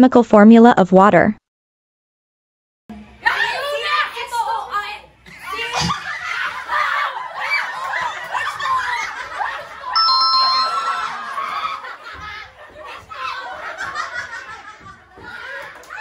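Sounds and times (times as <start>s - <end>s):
people laughing and shrieking: 5.3s - 16.0s
electronic two-note chime: 10.0s - 11.1s.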